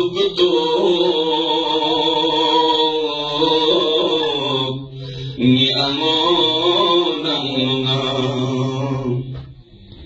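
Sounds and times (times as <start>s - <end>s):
man chanting into microphone: 0.0s - 10.0s.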